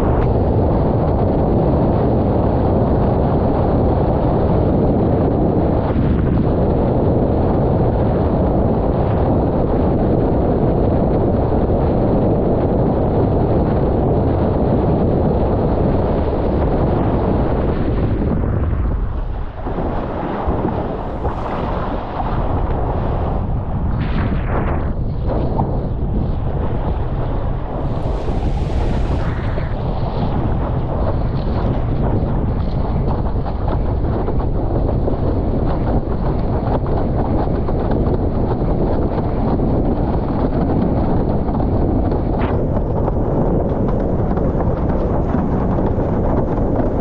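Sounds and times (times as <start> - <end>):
wind buffeting microphone: 0.0 - 47.0
water rushing under board: 18.8 - 34.9.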